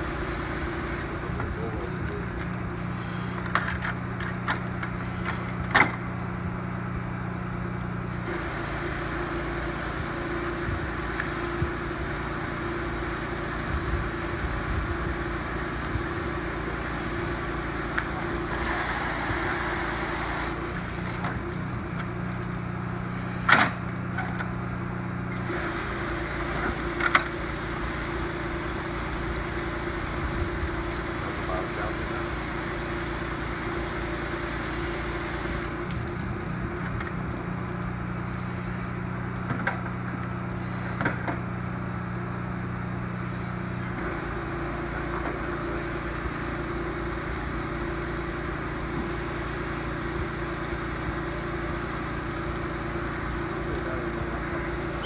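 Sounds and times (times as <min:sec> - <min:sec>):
pump engine drone: 0:00.0 - 0:55.0
water mist spraying hiss: 0:08.2 - 0:20.8, 0:25.4 - 0:35.8.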